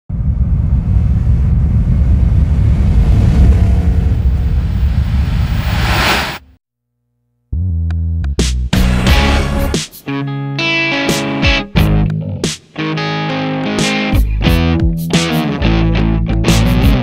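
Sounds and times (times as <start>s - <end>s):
deep rumble with whoosh: 0.1s - 6.6s
electric guitar music: 8.8s - 17.0s.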